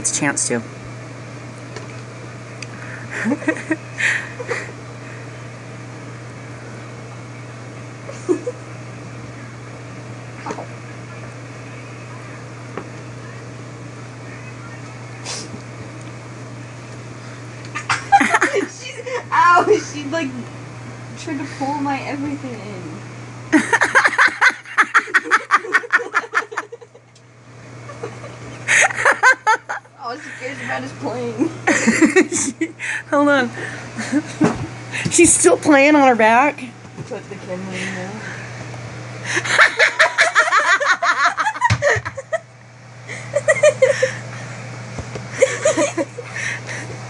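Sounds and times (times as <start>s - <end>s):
low steady hum: 0.0s - 47.0s
person giggling: 2.8s - 4.8s, 23.6s - 27.0s, 27.8s - 29.8s, 31.6s - 32.8s, 39.3s - 42.5s, 43.1s - 44.3s, 45.3s - 46.9s
person laughing: 2.8s - 4.8s, 8.1s - 8.6s, 17.7s - 19.3s, 23.5s - 27.1s, 27.8s - 29.9s, 31.6s - 33.0s, 39.3s - 42.5s, 43.1s - 44.4s, 45.3s - 46.9s.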